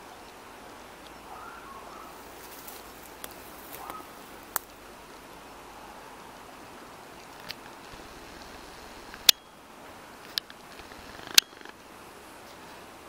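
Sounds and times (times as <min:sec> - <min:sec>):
outdoor background hiss: 0:00.0 - 0:13.0
sharp clicks: 0:10.2 - 0:11.8.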